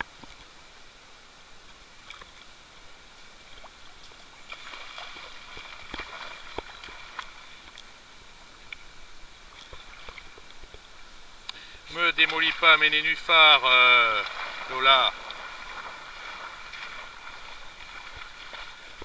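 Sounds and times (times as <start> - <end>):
water sloshing and splashing: 3.3 - 11.2, 12.0 - 19.0.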